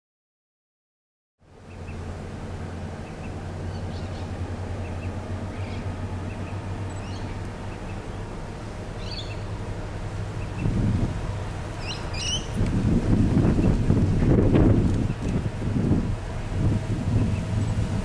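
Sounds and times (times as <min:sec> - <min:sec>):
distant diesel locomotive drone: 0:01.4 - 0:18.0
bird chirps: 0:03.0 - 0:08.3, 0:09.0 - 0:09.5, 0:11.8 - 0:12.6.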